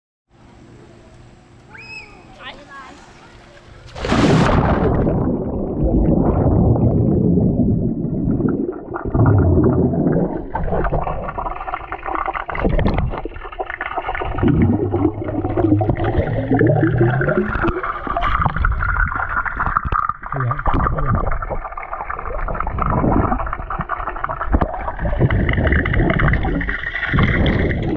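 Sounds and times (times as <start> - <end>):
splash into water: 3.8 - 7.0
muffled underwater gurgling: 4.3 - 27.9.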